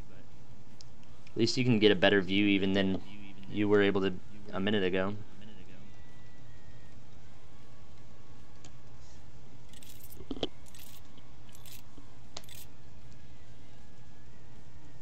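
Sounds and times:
steady low hum: 0.0s - 15.0s
clicks and clinks of handling objects: 9.7s - 11.8s, 12.4s - 12.7s.

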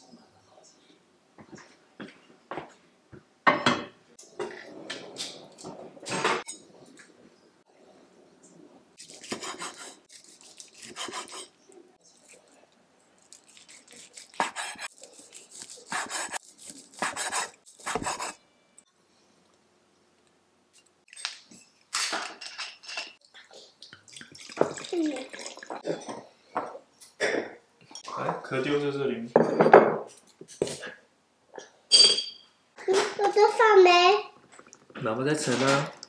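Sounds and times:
knife slicing meat on wood: 13.5s - 18.4s.

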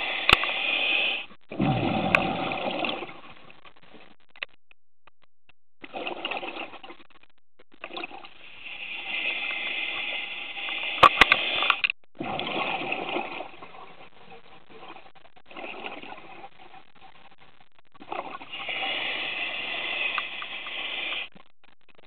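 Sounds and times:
exhaled bubbles underwater: 1.5s - 3.6s, 5.8s - 7.1s, 7.8s - 11.1s, 12.2s - 16.8s, 18.0s - 21.3s
sharp clicks: 3.6s - 5.6s.

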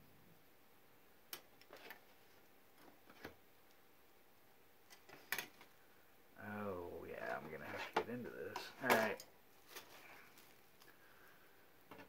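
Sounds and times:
man talking: 6.4s - 9.3s
plastic bags crinkling: 8.6s - 11.0s.

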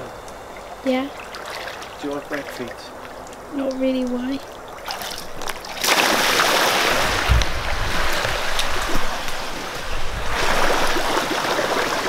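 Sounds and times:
water gushing from a pool: 0.9s - 2.9s, 4.5s - 12.0s
low thumps: 7.0s - 10.6s.

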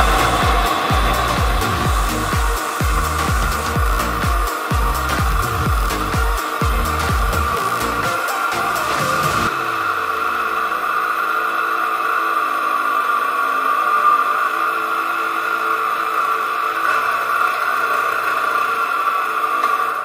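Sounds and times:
two-stroke engine running: 0.0s - 14.4s.

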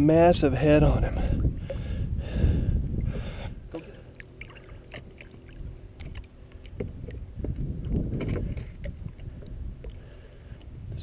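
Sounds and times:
water sloshing around net: 3.7s - 10.0s.

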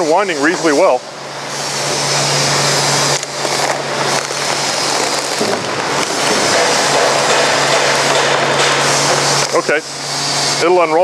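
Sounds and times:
plastic film crackling and rustling: 3.0s - 7.9s.

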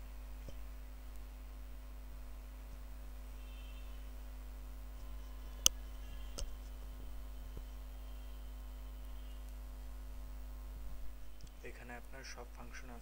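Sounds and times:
electrical hum and hiss: 0.0s - 13.0s.

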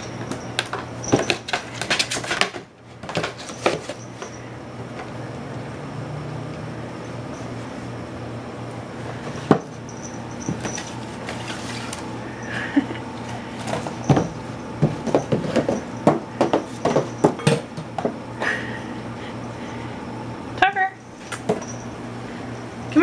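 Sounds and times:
cardboard box scraping tile floor: 0.0s - 4.3s, 10.4s - 12.2s
box knocking wooden cabinet doors: 14.0s - 18.2s.

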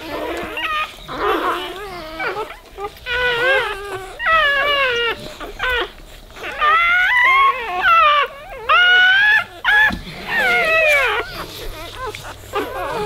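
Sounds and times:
puppies crying: 0.0s - 13.0s.

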